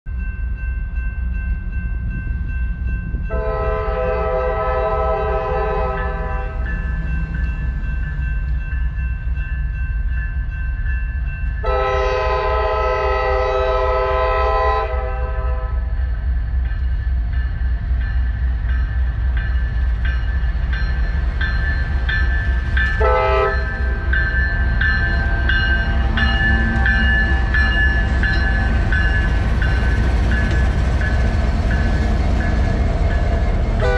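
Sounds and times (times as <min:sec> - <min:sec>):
diesel locomotive engine rumble: 0:00.1 - 0:33.9
train air horn blasts: 0:03.3 - 0:06.6, 0:11.6 - 0:15.9, 0:23.0 - 0:23.7
train wheel clicks: 0:18.5 - 0:33.8.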